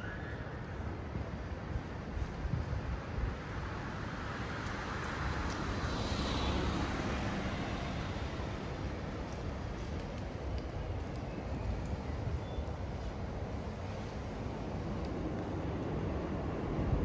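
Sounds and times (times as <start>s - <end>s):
city traffic rumble: 0.0s - 17.0s
vehicle passing by: 4.2s - 9.9s.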